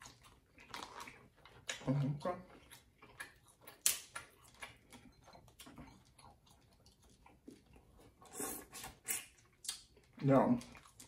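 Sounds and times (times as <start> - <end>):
crab shell cracking: 3.1 - 4.8.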